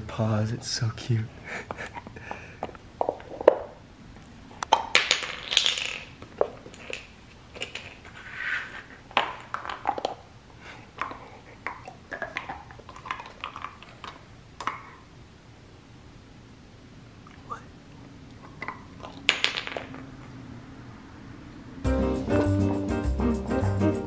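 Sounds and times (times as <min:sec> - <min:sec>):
puppy gnawing: 0:11.0 - 0:14.9.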